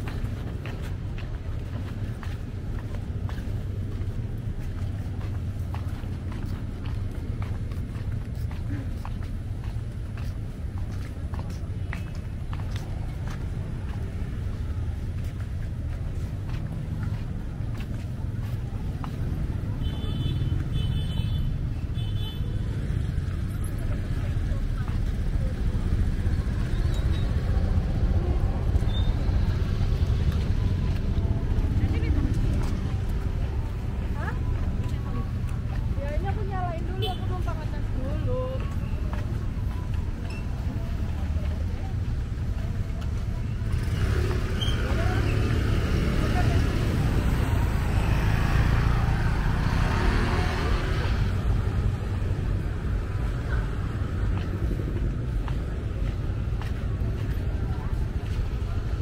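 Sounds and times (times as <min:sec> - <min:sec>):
slow road traffic rumble: 0:00.0 - 0:59.0
motor scooters passing: 0:43.3 - 0:59.0.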